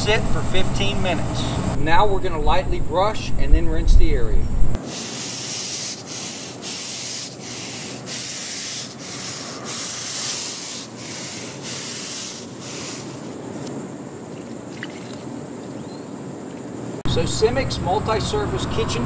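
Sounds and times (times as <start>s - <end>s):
deck brush scrubbing wet asphalt: 4.8s - 13.7s
rinse water splashing on pavement: 4.8s - 15.8s.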